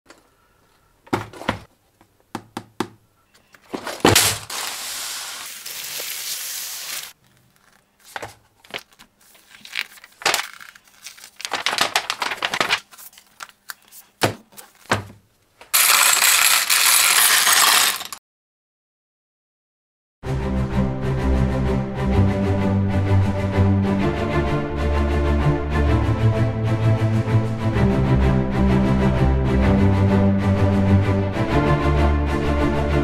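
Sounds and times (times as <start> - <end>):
packaging crinkling: 3.6 - 14.9
bricks rattling in plastic tub: 15.8 - 18.2
plastic bricks clicking: 15.8 - 18.2.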